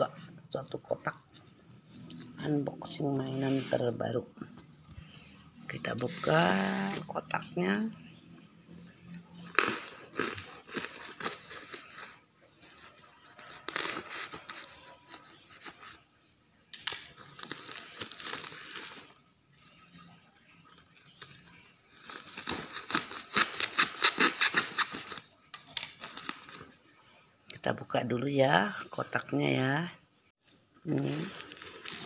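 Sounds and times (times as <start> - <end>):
plastic wrapping crinkling: 9.4 - 16.0, 16.8 - 19.3, 20.4 - 26.9, 30.4 - 32.0
packing tape tearing: 9.6 - 16.0, 16.8 - 19.2, 21.1 - 26.6.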